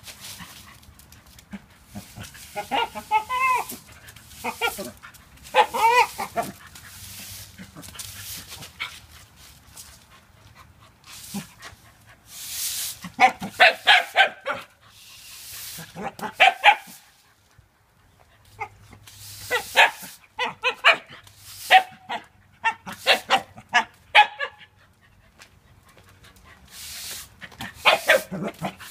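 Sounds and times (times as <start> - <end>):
broom swishing on concrete: 0.0 - 17.4, 18.4 - 23.7, 26.5 - 28.9
dog barking: 5.5 - 6.5, 13.2 - 14.7, 16.2 - 17.0, 19.5 - 21.1, 21.7 - 24.6, 27.8 - 28.5.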